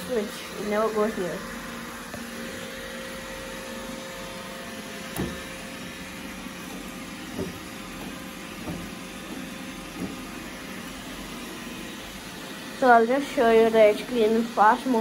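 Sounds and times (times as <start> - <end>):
robot vacuum running: 0.0 - 15.0
soft knocks: 7.3 - 10.3.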